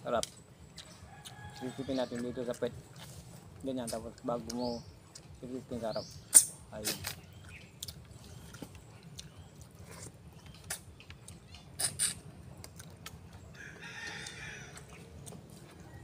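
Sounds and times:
rooster crowing: 0:01.0 - 0:02.4, 0:13.5 - 0:14.9.

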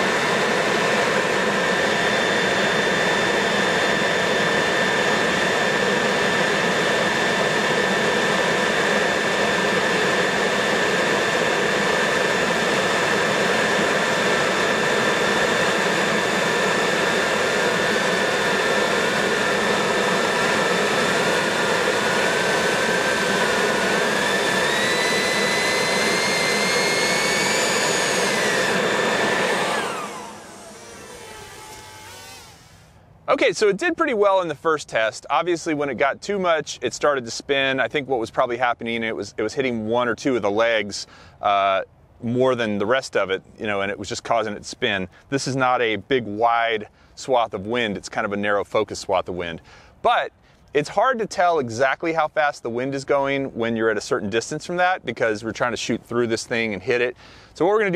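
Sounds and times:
leaf blower blowing: 0:00.0 - 0:33.3
drone propellers whining: 0:00.0 - 0:33.4.

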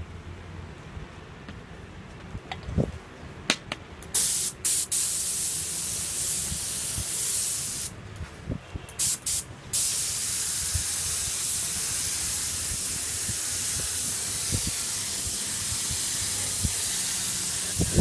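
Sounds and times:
spray gun hissing: 0:04.2 - 0:07.9, 0:09.0 - 0:18.0.

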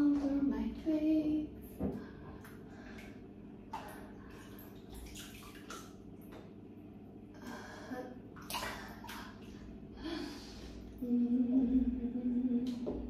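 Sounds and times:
slime sloshing and dripping: 0:02.0 - 0:06.7, 0:08.3 - 0:11.0.

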